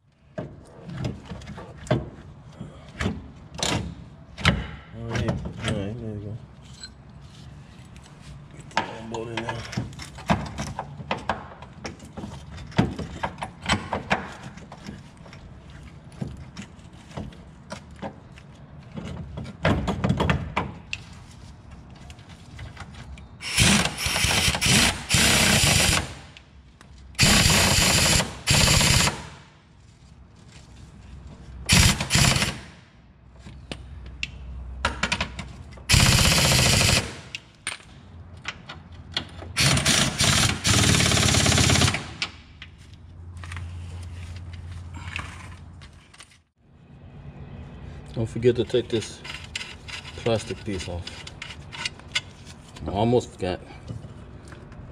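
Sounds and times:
pneumatic impact wrench hammering: 23.4 - 26.4, 27.2 - 29.5, 31.7 - 32.8, 35.9 - 37.4, 39.5 - 42.4.

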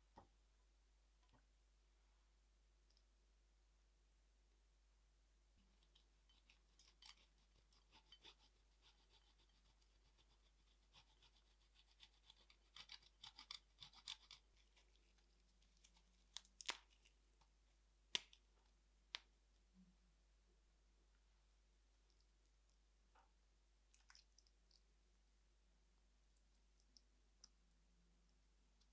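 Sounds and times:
cheese grating scratches: 5.8 - 17.0.

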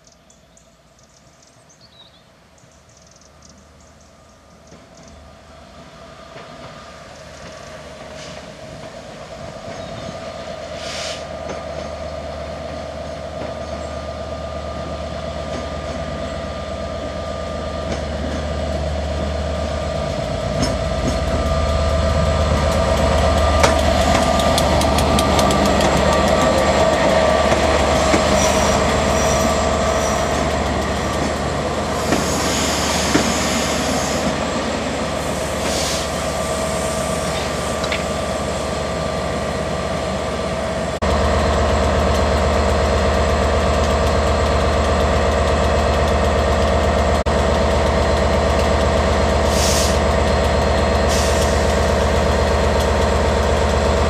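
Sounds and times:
diesel locomotive engine rumble: 0.0 - 54.0
wheels squealing: 27.8 - 30.5.

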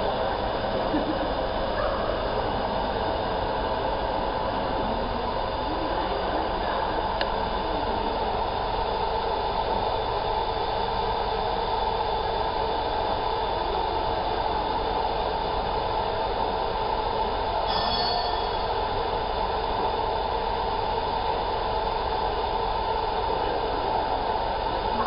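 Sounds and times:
faint higher tone: 17.7 - 18.7
laser marking machine drone: 17.7 - 18.8.

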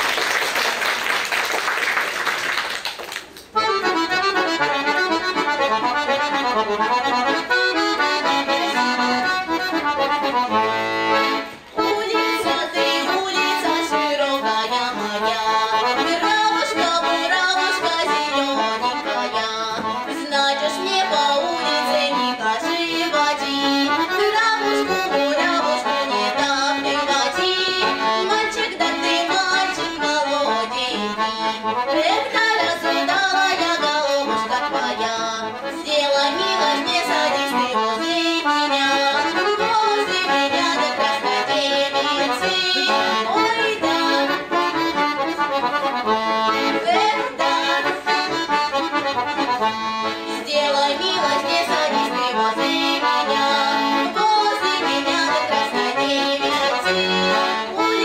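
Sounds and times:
audience applause: 0.0 - 3.5
accordion playing fast tune: 3.5 - 58.0.

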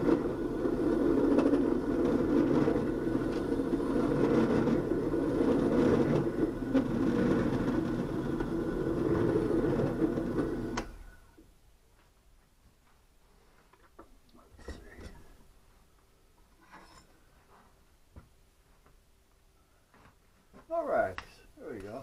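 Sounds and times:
drill press motor hum: 0.0 - 11.3.

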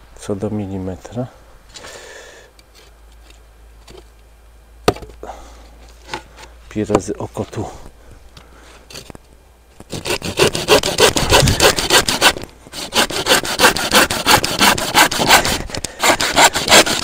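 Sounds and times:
hand saw cutting wood: 9.9 - 17.0.

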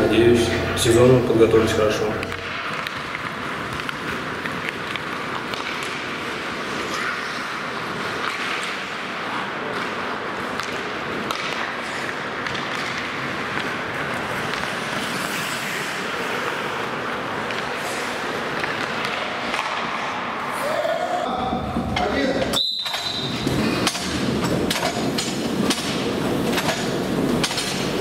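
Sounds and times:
sticks and puck clicking: 2.2 - 20.1
skate blades hissing on ice: 14.0 - 18.6.

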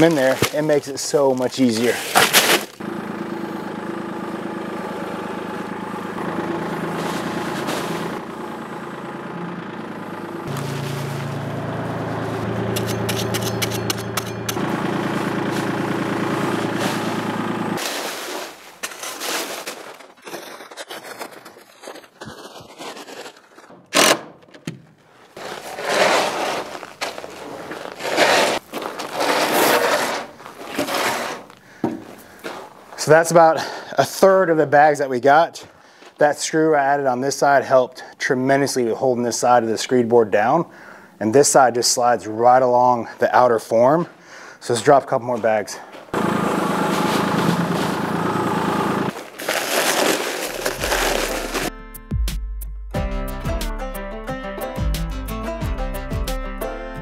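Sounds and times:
board scraping across concrete mix: 0.0 - 2.8, 6.9 - 8.2, 10.4 - 11.5, 12.1 - 23.9, 25.1 - 33.2, 45.4 - 51.7
paper bags rustling: 0.0 - 2.8, 17.8 - 24.1, 25.0 - 33.0, 46.8 - 48.1, 49.1 - 51.7
tractor diesel engine running: 2.8 - 17.9, 45.9 - 51.7
acoustic guitar music: 5.3 - 17.8, 50.6 - 52.3.

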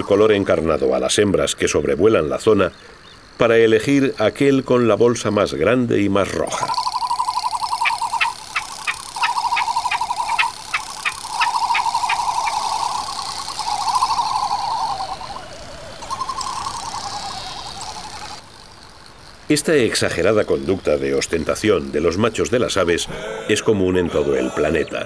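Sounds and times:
frigatebirds warbling trill: 6.3 - 18.9, 19.8 - 25.0.

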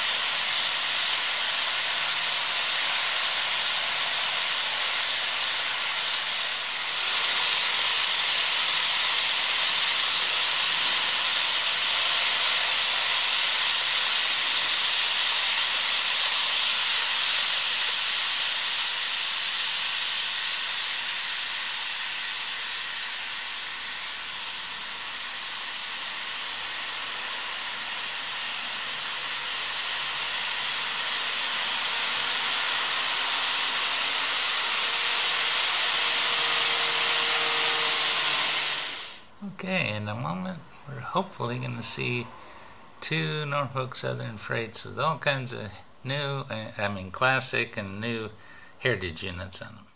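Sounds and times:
locomotive motors: 0.0 - 39.3
model train wheels hissing on rails: 0.0 - 39.4.

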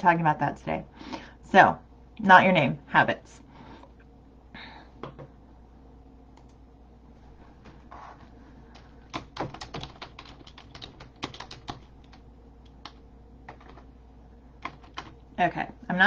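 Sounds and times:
computer keyboard typing: 9.1 - 13.8, 14.6 - 15.2.

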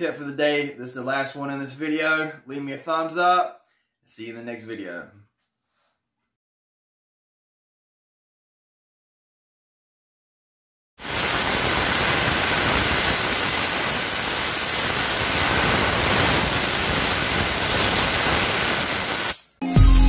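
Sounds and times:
steam cleaner hissing: 11.0 - 19.6.

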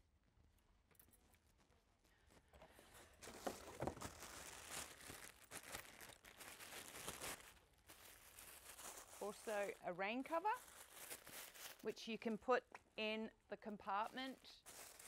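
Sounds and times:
plastic packaging crackling: 3.1 - 12.0, 14.0 - 15.0.

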